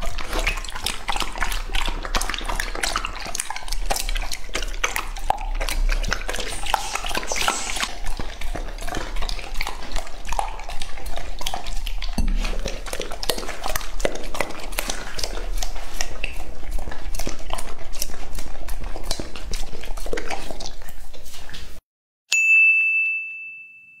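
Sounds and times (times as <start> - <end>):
dog licking a plate: 0.0 - 21.7
bright ding: 22.3 - 24.0.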